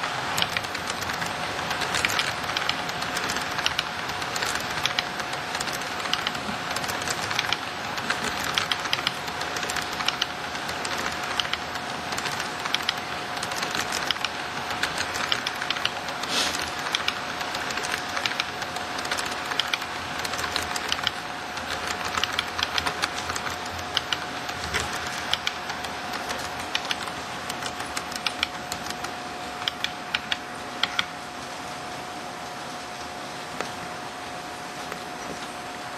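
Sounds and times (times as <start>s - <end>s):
model train wheels clicking: 0.0s - 31.1s.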